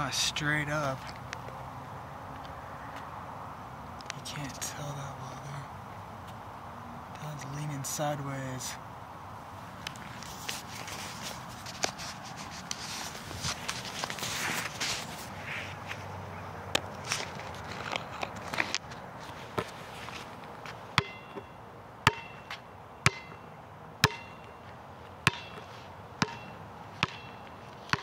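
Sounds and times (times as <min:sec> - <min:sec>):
basketball bouncing: 0:21.0 - 0:23.4, 0:24.0 - 0:24.5, 0:25.2 - 0:28.0.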